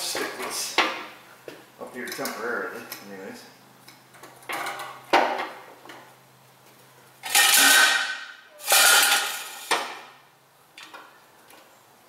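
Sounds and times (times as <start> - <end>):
metal clattering and scraping: 7.2 - 9.7.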